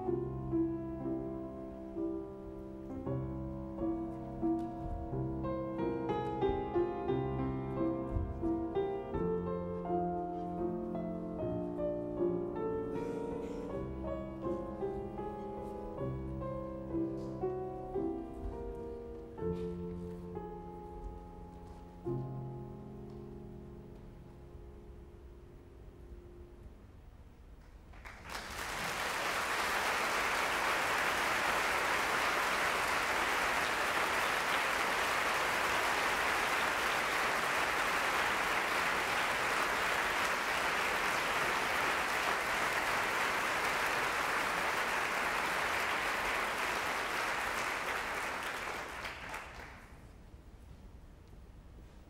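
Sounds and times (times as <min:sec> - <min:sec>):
audience applauding: 0:27.9 - 0:50.0.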